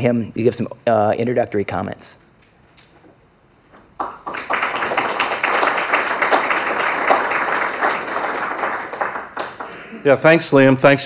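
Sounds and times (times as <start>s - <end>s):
audience applauding: 4.0s - 10.0s.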